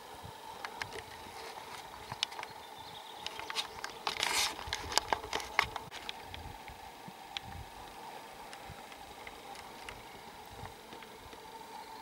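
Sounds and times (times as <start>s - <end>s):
undergrowth rustling: 0.0s - 12.0s
twigs snapping underfoot: 3.2s - 11.5s.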